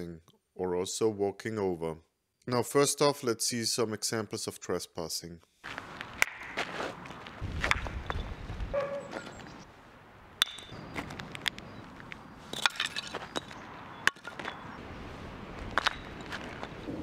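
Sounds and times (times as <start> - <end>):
footsteps crunching on gravel: 5.6 - 9.6, 10.6 - 16.9.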